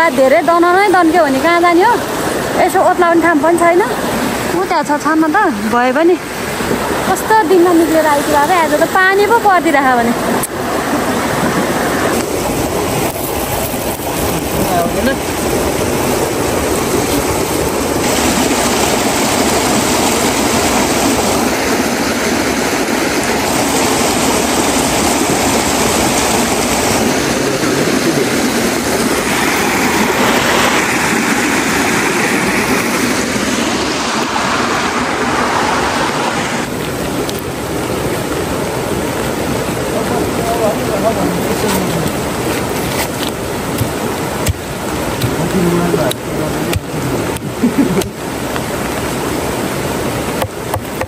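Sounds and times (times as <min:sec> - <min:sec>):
stream rushing over rocks: 0:00.0 - 0:51.0.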